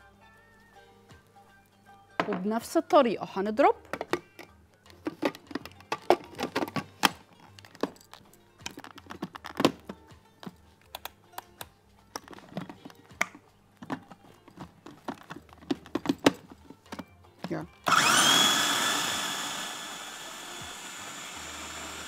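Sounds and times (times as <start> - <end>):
plastic lid clicking and knocking: 3.9 - 7.9, 8.7 - 11.5, 12.1 - 17.1.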